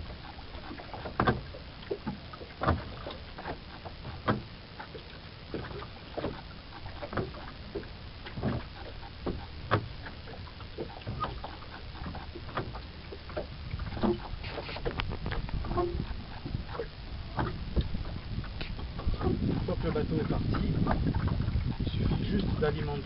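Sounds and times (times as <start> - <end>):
wind rumble on microphone: 0.0 - 23.0
oar knocking and clicking: 0.2 - 23.0
oar blade splashing: 0.6 - 18.0.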